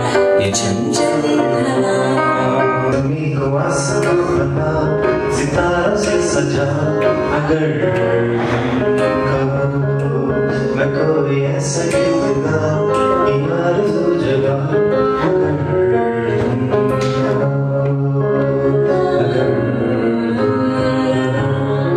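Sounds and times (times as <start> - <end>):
keyboard accompaniment: 0.0 - 21.9
man singing: 0.0 - 21.9.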